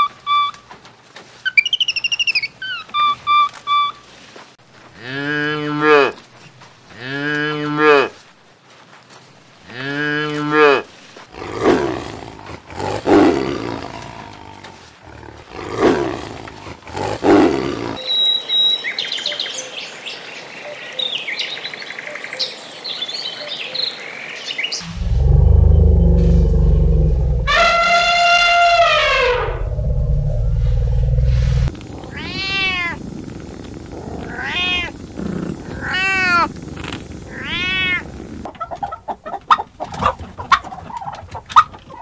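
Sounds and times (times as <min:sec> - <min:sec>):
high chirps and squeaks: 0:01.4 - 0:04.0
tiger growling and roaring: 0:09.7 - 0:18.0, 0:24.8 - 0:38.5
cow mooing: 0:24.8 - 0:32.9.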